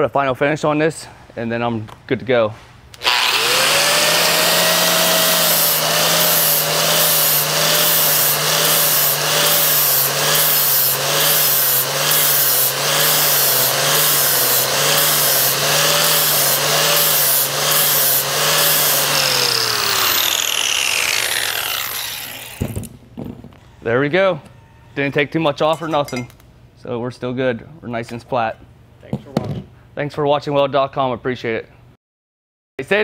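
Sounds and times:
angle grinder grinding steel: 3.0s - 22.9s
grinder winding down whine: 3.0s - 22.9s.

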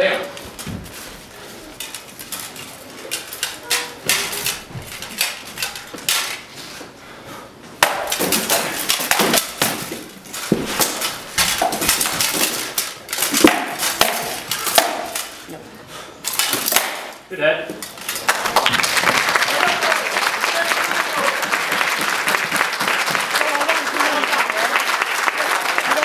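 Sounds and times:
weapons striking steel armour: 7.8s - 15.4s.

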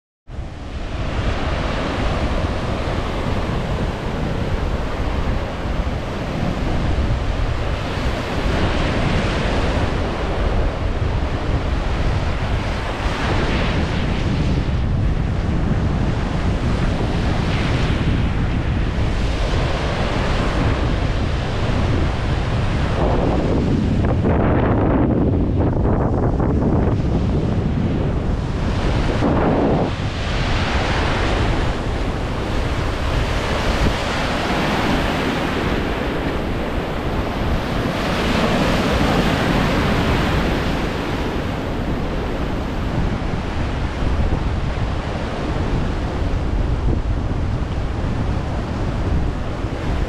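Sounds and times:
sea waves breaking: 0.3s - 50.0s
wind buffeting microphone: 0.3s - 50.0s.

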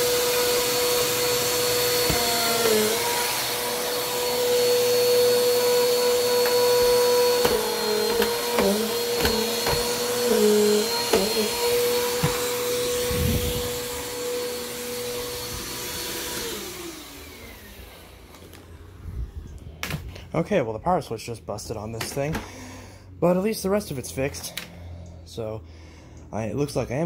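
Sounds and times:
motor winding down: 0.0s - 17.9s
vacuum cleaner motor whine: 0.0s - 20.2s.

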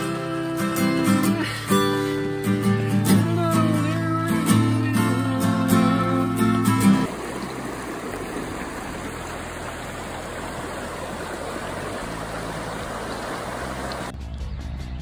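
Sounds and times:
water rushing over stones: 6.9s - 14.1s
music with steady beat: 14.1s - 15.0s.

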